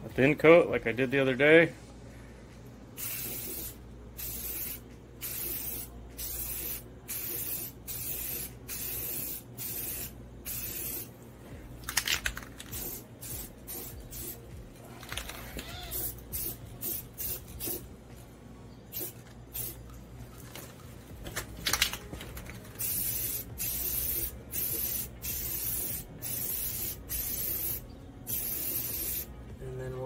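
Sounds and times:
spray can hissing: 3.0 - 11.1, 11.9 - 14.4, 15.6 - 17.9, 18.9 - 19.8, 22.7 - 29.3.

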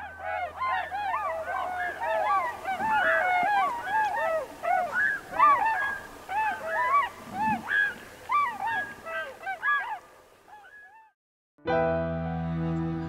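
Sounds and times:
geese honking: 0.0 - 10.0.

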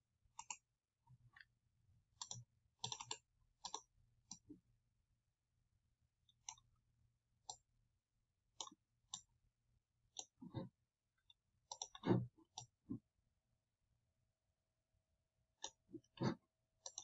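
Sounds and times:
computer mouse clicking: 0.4 - 0.6, 2.2 - 4.4, 10.2 - 10.6, 11.7 - 12.8, 15.6 - 17.0.

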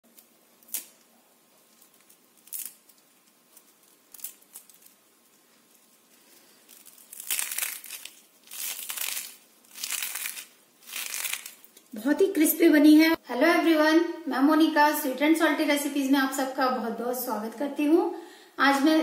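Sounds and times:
crisp snack cracking and crunching: 0.1 - 11.9.

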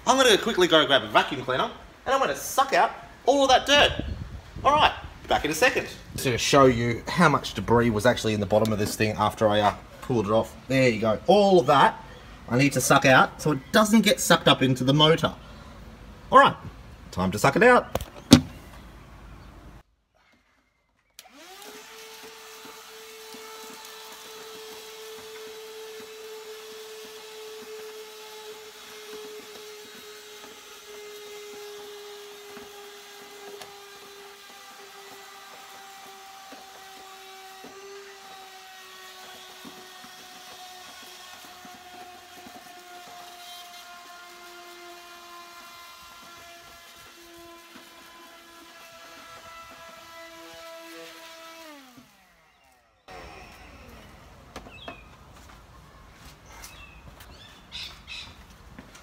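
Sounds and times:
handheld vacuum cleaner whining: 21.2 - 45.0, 45.6 - 55.1.

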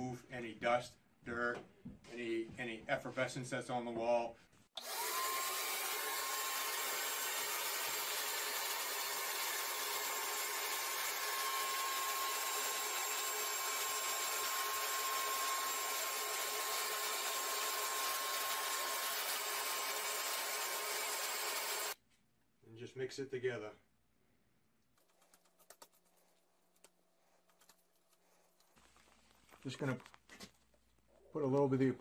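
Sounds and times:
shop vacuum whining: 4.8 - 22.0.

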